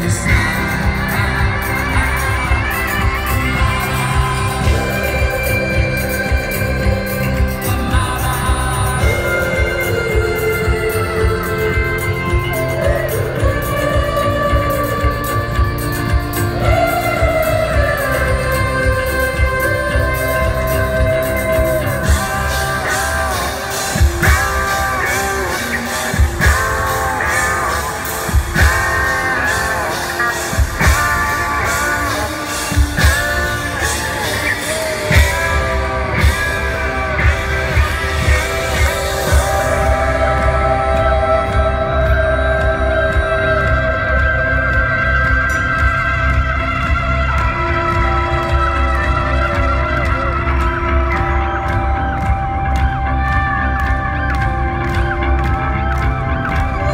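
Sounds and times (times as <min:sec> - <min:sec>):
live rock band playing: 0:00.0 - 0:56.9
drum beat: 0:21.5 - 0:41.8.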